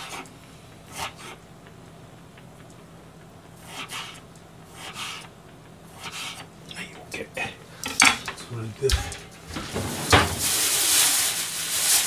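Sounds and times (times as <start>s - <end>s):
steady hiss: 5.9s - 12.0s.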